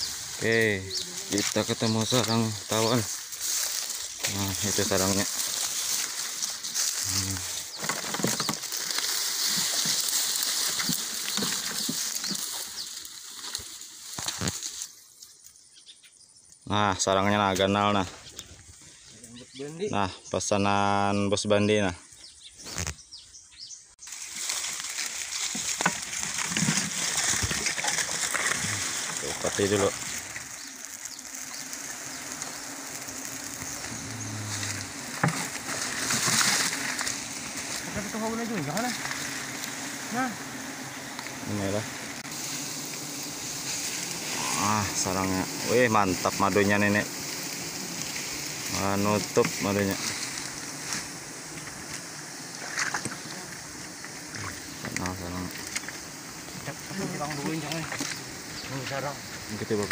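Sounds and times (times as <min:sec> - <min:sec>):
footsteps in undergrowth: 0:00.0 - 0:15.5, 0:24.0 - 0:41.5, 0:42.2 - 0:59.9
rustling leaves: 0:00.0 - 0:15.7, 0:24.0 - 0:59.9
steady high-pitched hiss: 0:00.0 - 0:21.1, 0:24.0 - 0:59.9
twigs snapping: 0:01.2 - 0:14.8, 0:24.2 - 0:37.9.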